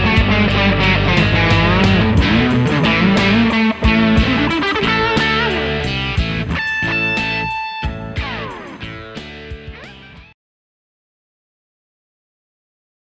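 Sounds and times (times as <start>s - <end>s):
electric guitar music with beat: 0.0s - 10.4s.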